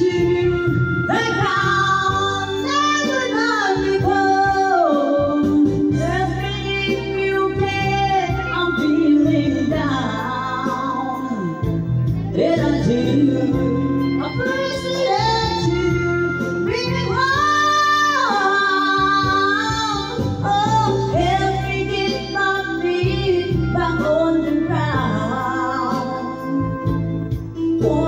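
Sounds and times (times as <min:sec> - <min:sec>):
music backing track: 0:00.0 - 0:28.0
man singing into microphone: 0:12.4 - 0:15.8.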